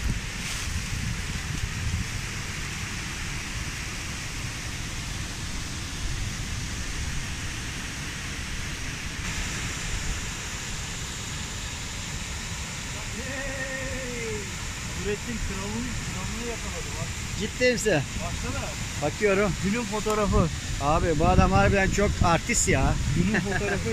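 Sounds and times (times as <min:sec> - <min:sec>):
waterfall rushing: 0:00.0 - 0:23.9
man's voice: 0:13.0 - 0:23.9.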